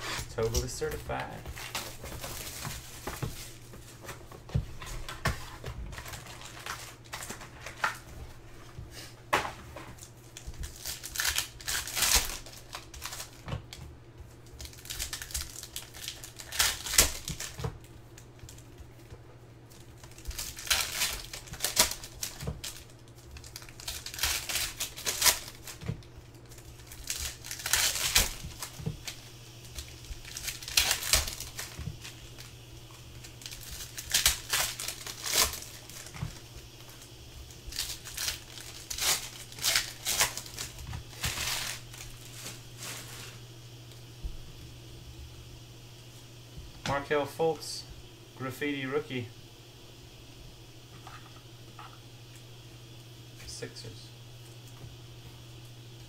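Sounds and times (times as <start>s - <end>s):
foil wrappers crackling: 0.0s - 44.6s
faint low hum: 0.0s - 56.0s.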